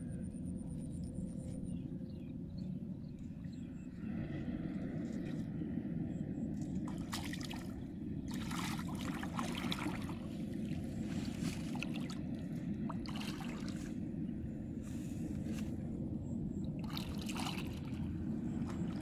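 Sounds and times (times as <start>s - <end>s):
low rumble: 0.0s - 19.0s
water trickling and splashing: 6.5s - 14.0s, 16.8s - 19.0s.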